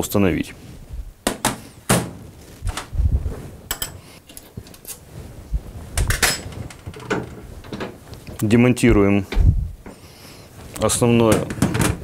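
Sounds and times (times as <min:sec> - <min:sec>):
metal plates clicking and clunking: 0:06.0 - 0:08.0
low thump: 0:08.9 - 0:09.7.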